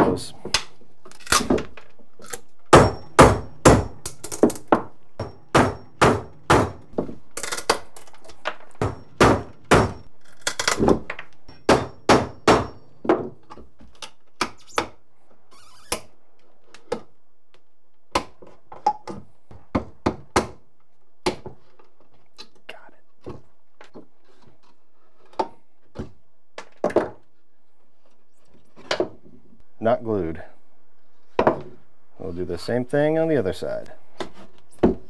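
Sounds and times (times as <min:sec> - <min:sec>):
hammer striking metal: 0:02.7 - 0:04.0, 0:05.2 - 0:06.8, 0:08.8 - 0:10.1, 0:11.5 - 0:12.9.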